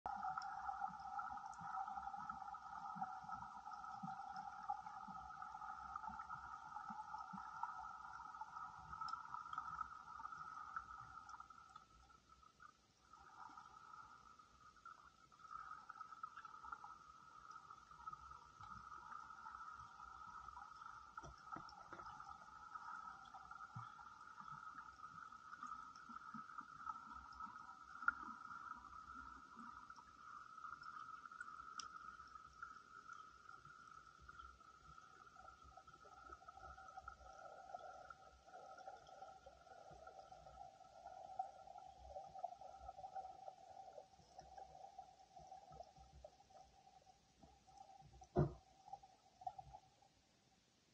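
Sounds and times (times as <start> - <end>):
underwater hum: 0.0 - 50.4
faint ticks and clicks: 0.1 - 50.1
soft thuds: 48.3 - 48.6.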